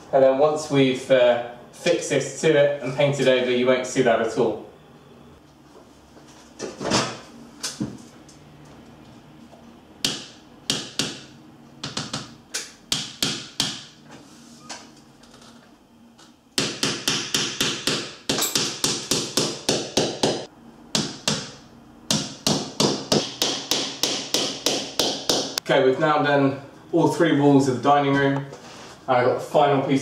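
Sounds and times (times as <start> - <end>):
hammer tapping nails: 16.6 - 21.5, 22.1 - 25.6.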